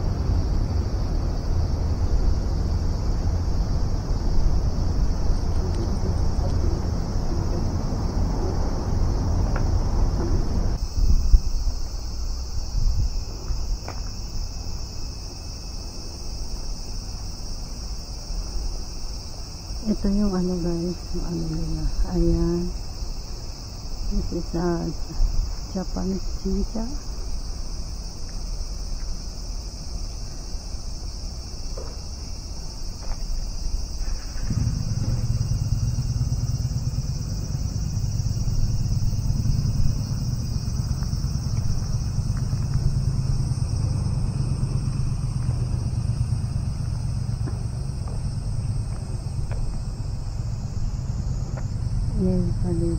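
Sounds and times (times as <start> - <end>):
wind rumble on microphone: 0.0 - 15.6, 19.2 - 52.9
cicadas buzzing: 0.0 - 52.9
insects droning: 0.0 - 52.9
loud low rumble: 34.1 - 52.9.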